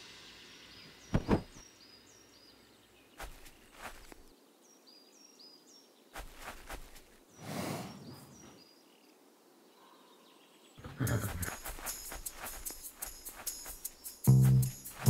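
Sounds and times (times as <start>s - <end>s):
small birds chirping: 0.4s - 15.0s
horse sighing exhale: 7.4s - 8.3s
music with rhythmic strikes: 11.8s - 15.0s.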